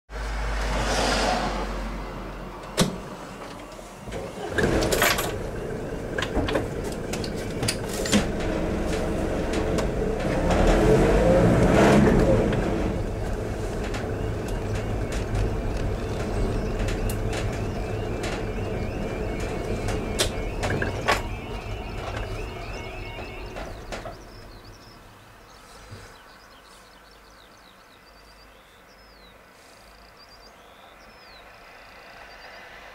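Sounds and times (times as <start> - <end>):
car engine and road rumble: 0.1 - 32.9
yodelling crossing alarm: 12.2 - 25.1.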